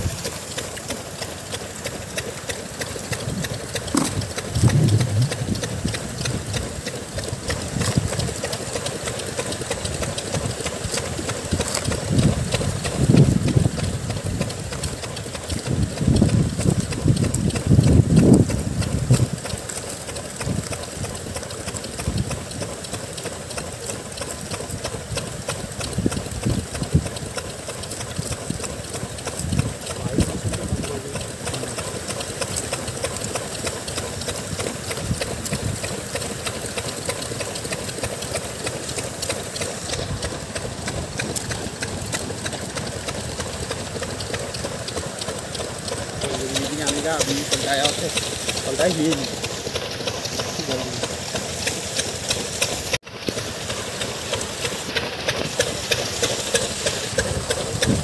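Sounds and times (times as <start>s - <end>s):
water sloshing: 0.0s - 8.0s
motor running: 0.0s - 58.0s.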